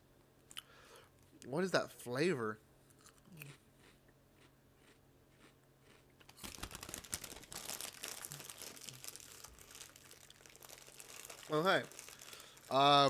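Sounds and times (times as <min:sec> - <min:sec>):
plastic snack bag crinkling: 0:06.2 - 0:13.0.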